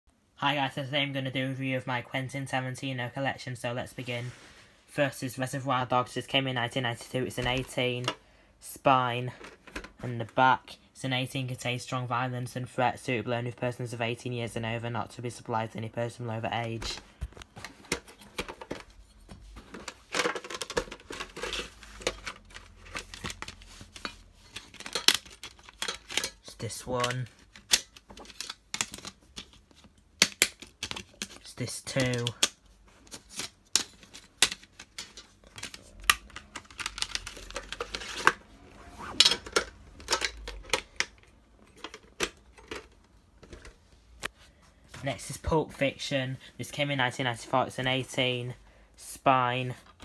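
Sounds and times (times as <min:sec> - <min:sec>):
card and paper rustling: 0:16.6 - 0:44.4
plastic cases clicking: 0:19.6 - 0:26.4, 0:27.0 - 0:38.4, 0:39.2 - 0:44.3.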